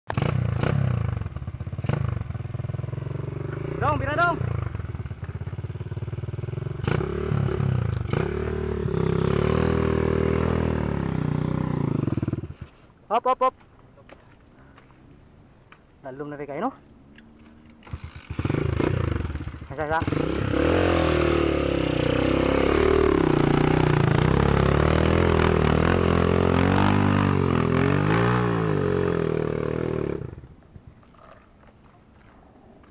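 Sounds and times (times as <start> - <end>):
dirt bike engine revving: 0.1 - 12.7, 17.5 - 30.5.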